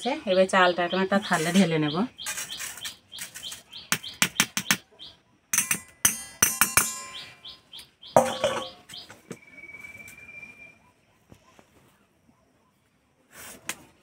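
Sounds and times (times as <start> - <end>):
bird chirping: 0.0 - 11.6
metal strainer knocking on steel plate: 8.2 - 8.8.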